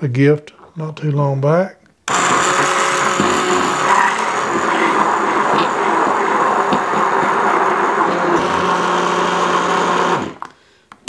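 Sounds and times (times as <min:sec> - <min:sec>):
stick blender motor whining: 0:02.1 - 0:10.5.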